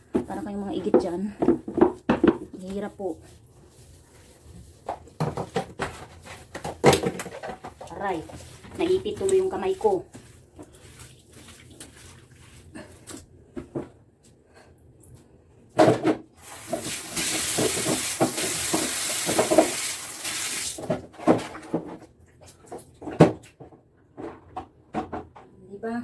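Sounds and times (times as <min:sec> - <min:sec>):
scrubbing knocks and clatter in tub: 0:00.0 - 0:14.0, 0:15.7 - 0:25.5
tap water running into bathtub: 0:04.7 - 0:13.2, 0:16.4 - 0:21.6.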